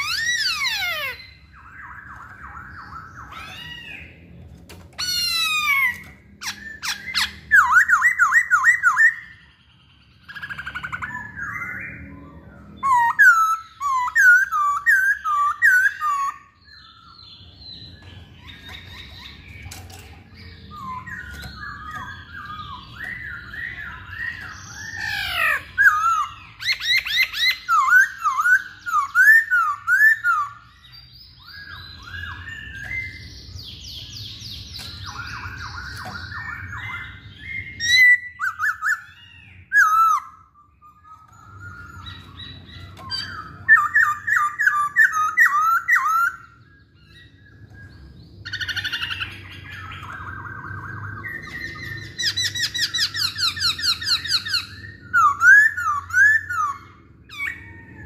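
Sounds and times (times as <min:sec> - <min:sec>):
bird singing whistled song: 0:00.0 - 0:04.4, 0:05.0 - 0:58.0.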